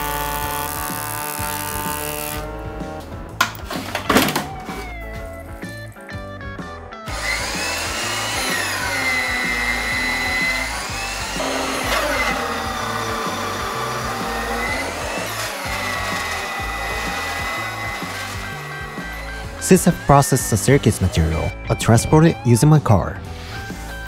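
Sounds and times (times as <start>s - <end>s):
thickness planer cutting wood: 0.0s - 2.9s, 7.1s - 21.5s
background music: 0.0s - 24.0s.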